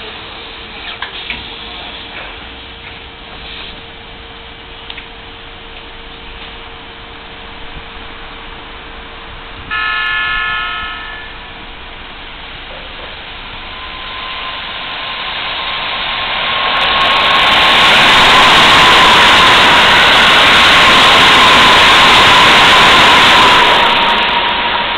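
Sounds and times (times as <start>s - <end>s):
steady train whine: 0.0s - 24.9s
train wheels rushing: 7.3s - 24.9s
train horn blast: 9.7s - 11.6s.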